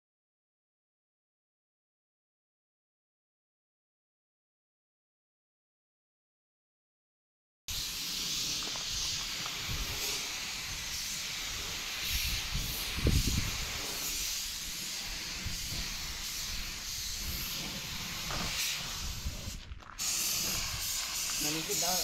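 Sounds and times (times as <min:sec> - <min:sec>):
paint spray gun hissing: 0:07.7 - 0:22.0.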